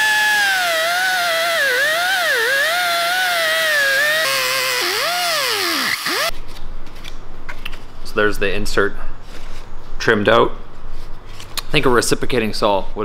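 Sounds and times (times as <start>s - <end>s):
air cut-off tool whining: 0.0s - 6.3s.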